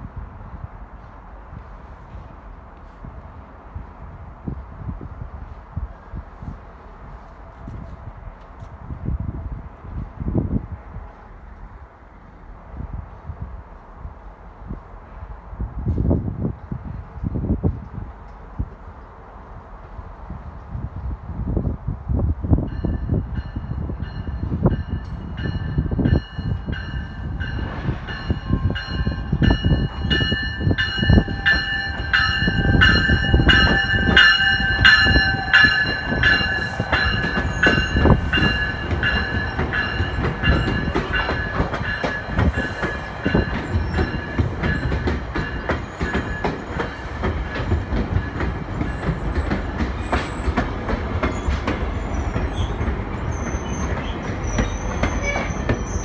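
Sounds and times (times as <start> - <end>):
train wheels rumbling and clacking: 22.5 - 56.0
train bell ringing: 22.7 - 49.1
high-pitched wheel squeals: 52.0 - 56.0.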